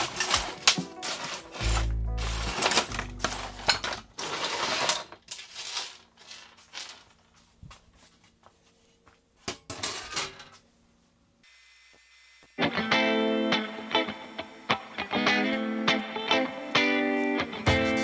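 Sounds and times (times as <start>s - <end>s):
background music: 0.0s - 4.1s, 12.6s - 18.0s
metal tools clattering on workbench: 0.0s - 7.1s, 9.6s - 10.6s.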